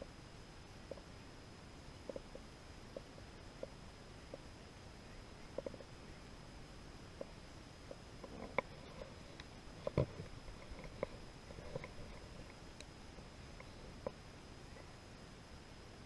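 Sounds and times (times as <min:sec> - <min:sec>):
low hiss: 0:00.0 - 0:16.0
small clicks and soft knocks: 0:05.5 - 0:05.9, 0:07.2 - 0:14.9.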